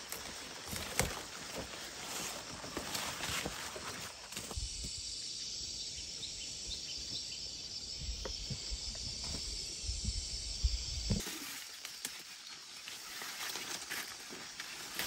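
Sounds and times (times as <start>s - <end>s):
wind rumbling on microphone: 8.0s - 11.2s.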